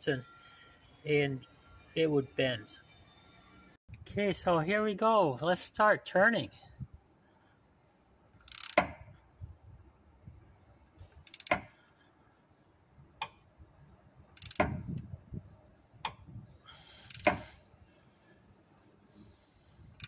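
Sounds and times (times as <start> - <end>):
ratchet wrench clicking: 8.4 - 8.8, 11.2 - 11.6, 14.4 - 14.7, 16.9 - 17.5.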